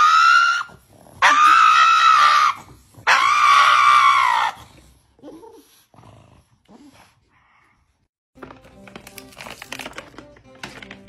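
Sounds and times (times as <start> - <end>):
dog howling: 0.0 - 4.6.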